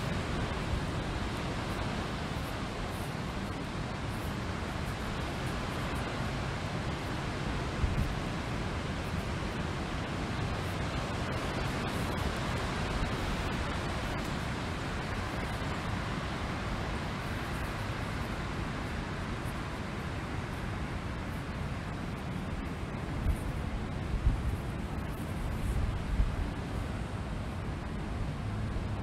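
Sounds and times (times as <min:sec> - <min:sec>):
wind blowing: 0:00.0 - 0:29.0.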